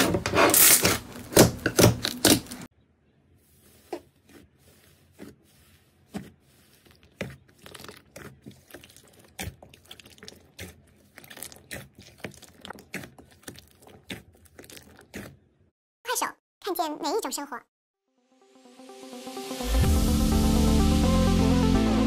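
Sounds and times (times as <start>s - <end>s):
slime crackling and popping: 6.9s - 15.3s.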